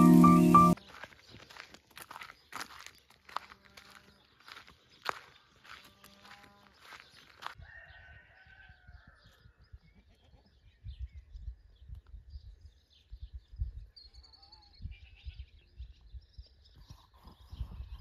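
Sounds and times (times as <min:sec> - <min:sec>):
footsteps on grass: 0:00.0 - 0:07.6.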